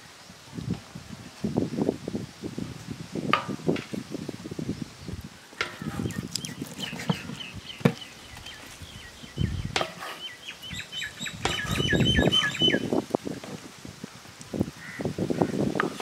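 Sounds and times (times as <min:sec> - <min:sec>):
small bird chirping: 0:06.0 - 0:12.9.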